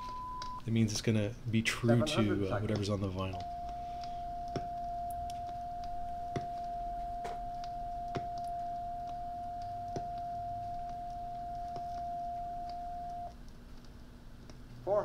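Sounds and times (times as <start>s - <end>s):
light record ticks: 2.4s - 14.8s
steady test tone: 3.3s - 13.3s.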